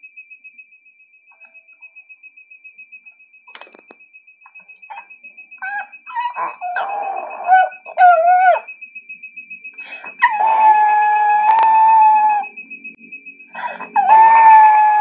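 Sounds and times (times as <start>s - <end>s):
rapid high beeping alarm: 0.0s - 15.0s
dog whining and howling: 4.9s - 8.7s, 10.1s - 12.5s, 13.6s - 15.0s
dog yelping: 5.6s - 8.6s.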